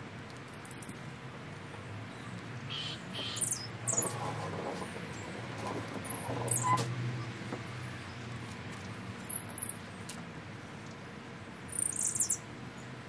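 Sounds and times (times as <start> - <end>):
birds chirping: 0.4 - 1.0, 2.1 - 4.3, 9.2 - 9.8, 11.7 - 13.0.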